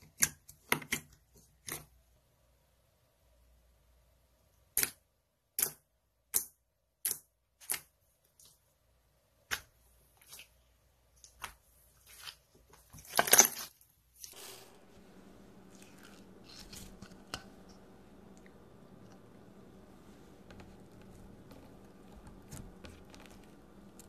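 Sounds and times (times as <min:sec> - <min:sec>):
wet slime crackle: 0:15.0 - 0:24.0.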